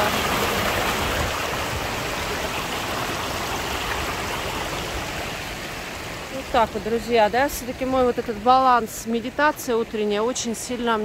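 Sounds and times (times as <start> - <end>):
river rushing over stones: 0.0 - 11.0.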